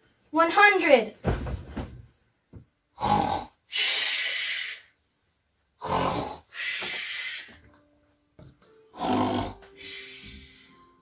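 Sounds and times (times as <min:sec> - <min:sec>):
person snoring: 0:02.9 - 0:04.9, 0:05.8 - 0:07.5, 0:08.9 - 0:10.8.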